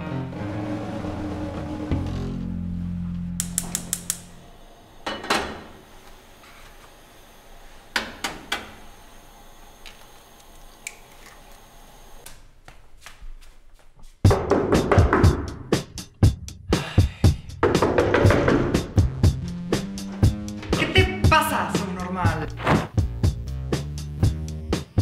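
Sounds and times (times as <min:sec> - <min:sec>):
music: 0:00.0 - 0:04.2, 0:14.2 - 0:25.0
music with drums: 0:14.2 - 0:25.0.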